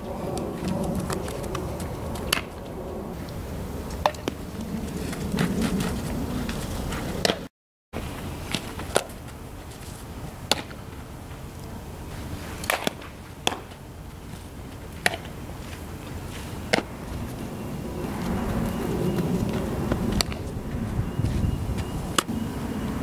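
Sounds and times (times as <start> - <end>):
steady low rumble: 0.0 - 7.3, 13.3 - 23.0.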